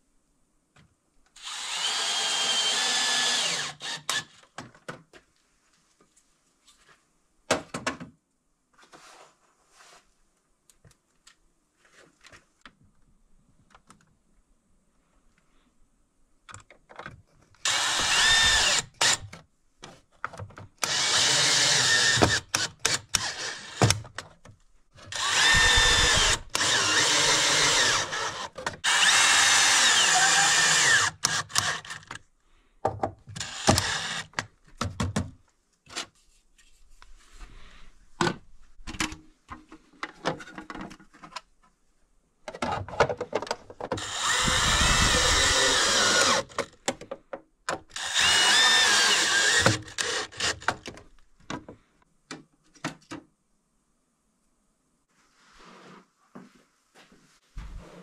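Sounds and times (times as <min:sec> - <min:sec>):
cordless drill whining: 0:01.4 - 0:04.4, 0:17.6 - 0:19.3, 0:20.8 - 0:24.0, 0:25.1 - 0:32.2, 0:33.4 - 0:34.4, 0:44.0 - 0:46.7, 0:47.9 - 0:50.9.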